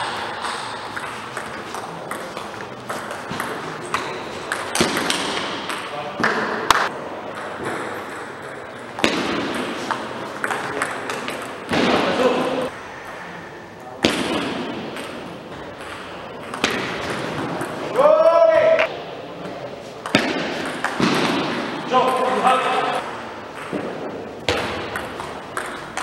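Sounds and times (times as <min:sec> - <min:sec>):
voices in hall: 0:00.0 - 0:26.0.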